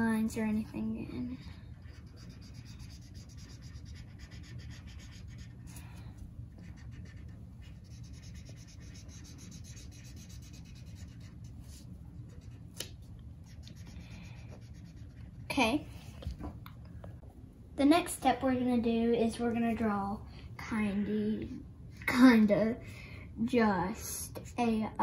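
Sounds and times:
low steady hum: 0.0 - 25.0
marker scribbling on paper: 1.7 - 5.7, 6.5 - 12.6, 13.5 - 15.6.

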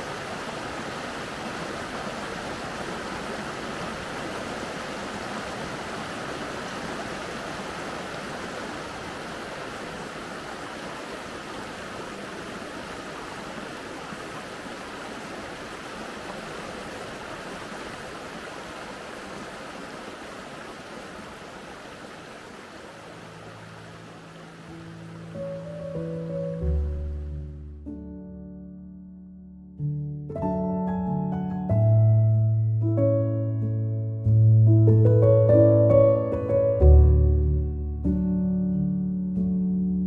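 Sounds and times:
stream water rushing: 0.0 - 27.5.

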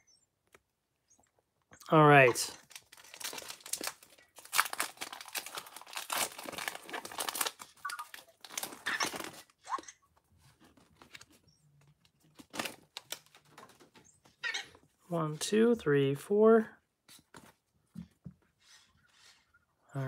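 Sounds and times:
foil wrapper tearing and crinkling: 2.5 - 9.5.

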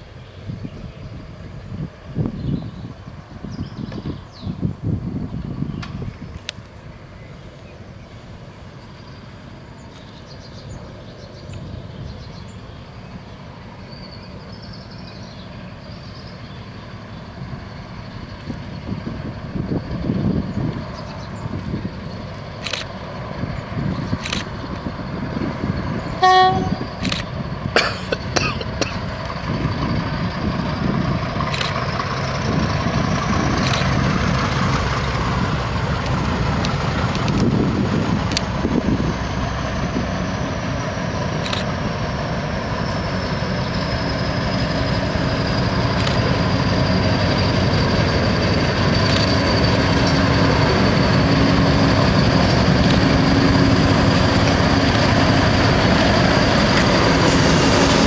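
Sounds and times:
diesel locomotive engine: 0.0 - 58.0
high engine whine: 0.0 - 58.0
train horn blast: 26.2 - 26.9.

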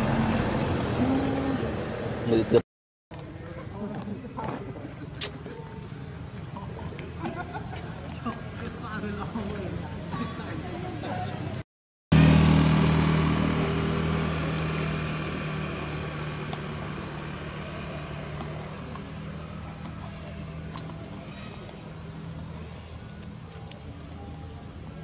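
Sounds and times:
vehicle engine passing by: 0.0 - 2.6, 12.1 - 24.6.

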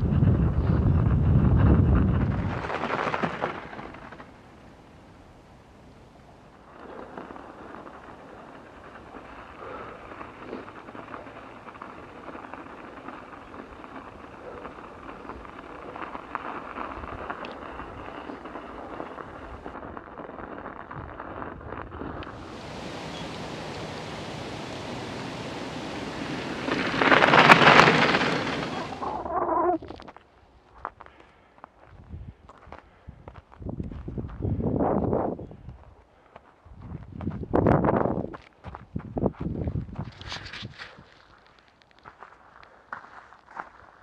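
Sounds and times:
wind on microphone: 0.0 - 4.1, 20.8 - 30.1, 31.9 - 36.0, 36.6 - 41.1
bike tyres rolling over snow: 0.0 - 44.0.

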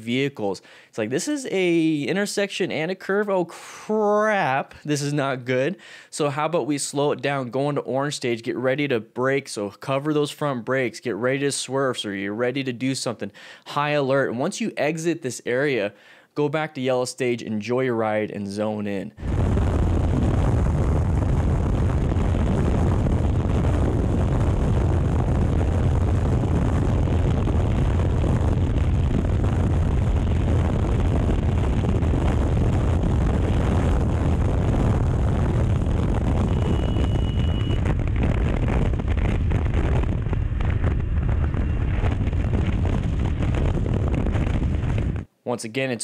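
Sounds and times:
wind rush on microphone: 19.2 - 45.3
short high beep: 36.4 - 37.8.

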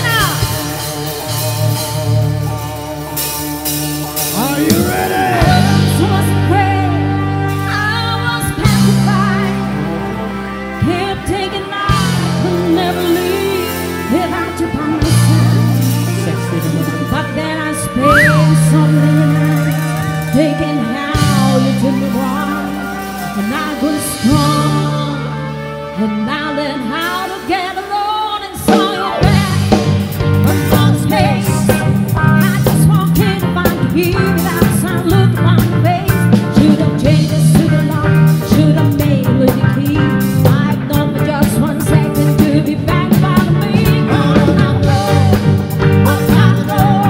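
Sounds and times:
live band playing: 0.0 - 47.0
lead vocal singing: 4.2 - 7.7, 27.0 - 33.5.

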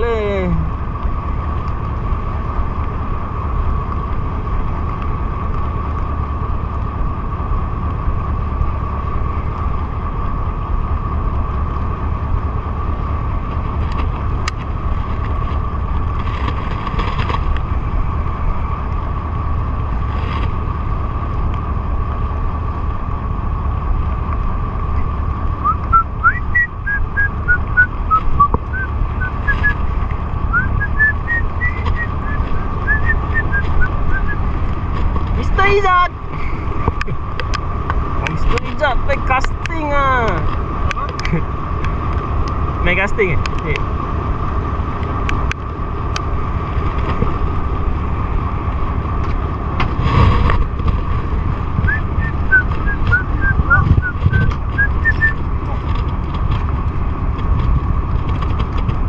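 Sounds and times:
boat engine rumble and whine: 0.0 - 59.0
rising whistled notes: 25.6 - 29.8, 30.5 - 34.4, 51.9 - 55.4.

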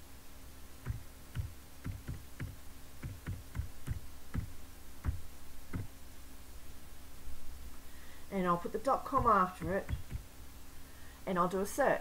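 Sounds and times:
computer keyboard typing: 0.9 - 5.2.

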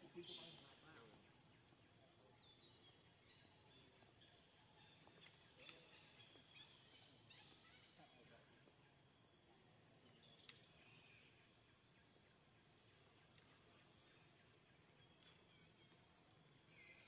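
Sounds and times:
faint ticks and chirps: 0.0 - 17.0
high-pitched insect drone: 9.9 - 17.0.

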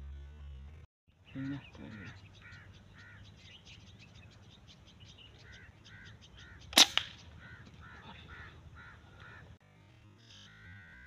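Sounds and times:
birds calling faintly: 0.0 - 11.0
rifle shot: 6.7 - 7.2
weaker crack: 6.7 - 7.8.

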